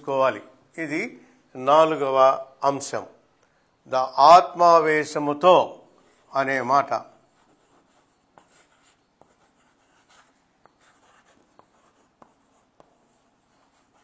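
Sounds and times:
chalk scratching: 7.1s - 14.0s
chalk tapping on blackboard: 7.5s - 14.0s.

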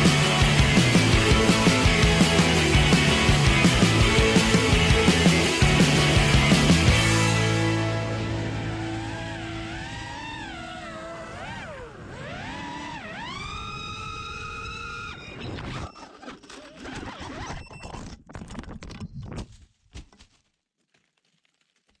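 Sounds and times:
quadcopter motors whining: 9.6s - 16.8s.

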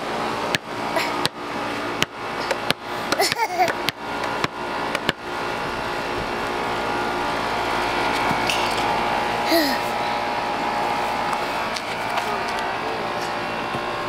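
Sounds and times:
steady mechanical hum: 0.0s - 14.0s
toddler vocal sound: 9.5s - 9.9s.

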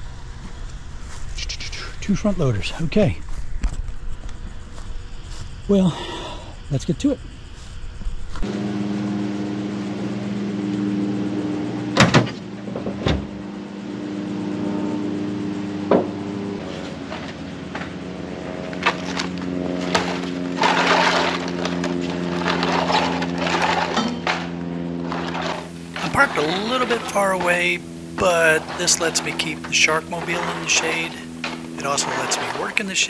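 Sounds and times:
steady low hum: 0.0s - 33.0s
sharp knocks: 15.9s - 16.2s
metal unit scraping on pavement: 16.6s - 33.0s.

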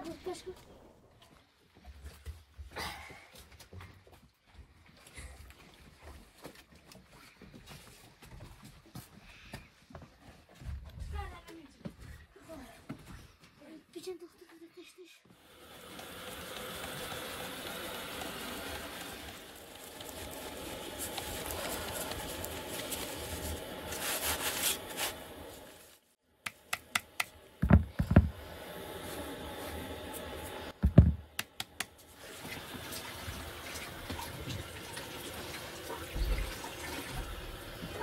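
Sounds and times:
flour rustling through metal sieve: 16.8s - 26.0s
heavier thumps: 30.8s - 31.4s.

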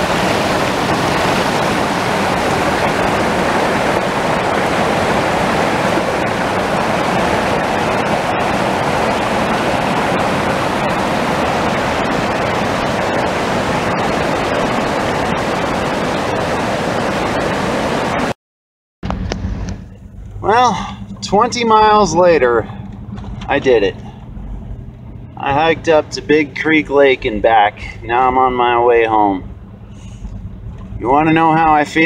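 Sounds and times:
creek rushing over rocks: 0.0s - 18.4s.

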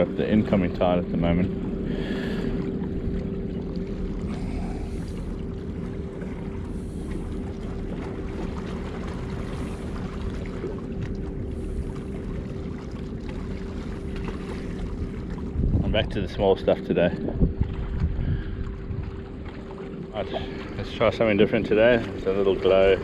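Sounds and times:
faint hum: 0.0s - 23.0s
wind buffeting microphone: 14.3s - 23.0s.

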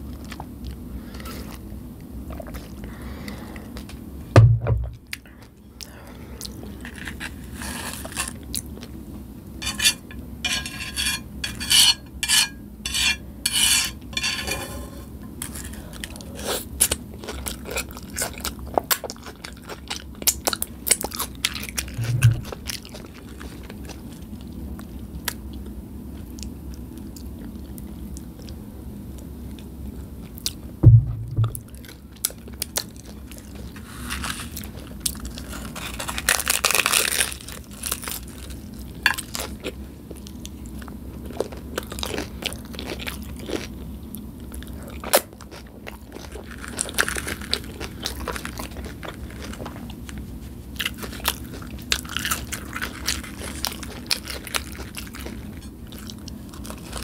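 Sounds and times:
dull thumps: 4.4s - 5.0s, 30.8s - 31.7s
crunchy chewing: 5.0s - 9.0s, 9.6s - 28.6s, 31.7s - 57.0s.

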